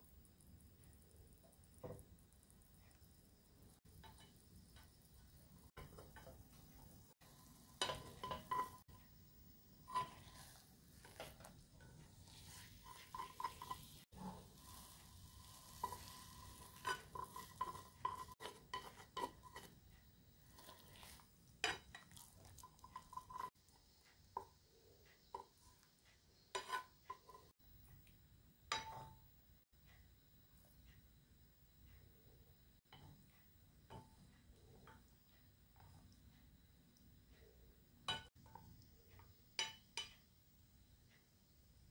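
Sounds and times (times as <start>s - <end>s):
egg sizzling: 0.0s - 28.1s
chopsticks tapping frying pan: 3.8s - 9.0s, 9.8s - 27.5s, 28.7s - 29.2s, 32.8s - 36.2s, 38.1s - 40.4s.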